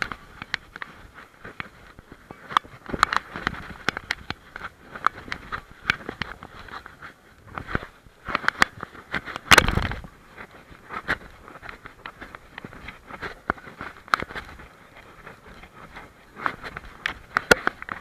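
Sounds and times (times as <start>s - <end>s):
camera mount clicks and scrapes: 9.4s - 10.0s.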